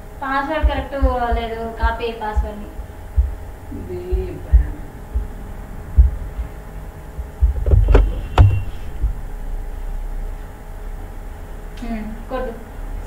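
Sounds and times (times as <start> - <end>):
faint electrical hum: 0.0 - 13.0
low thumps on microphone: 0.6 - 9.6.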